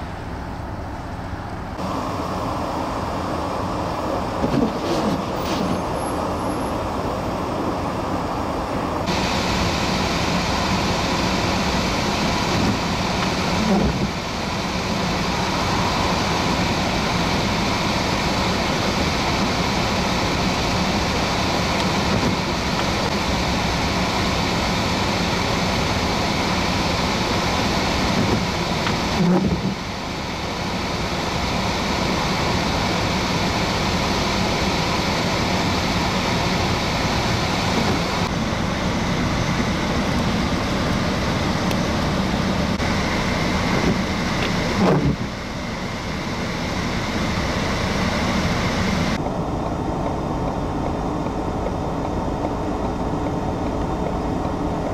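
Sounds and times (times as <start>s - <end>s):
cars driving past: 12.4s - 20.9s.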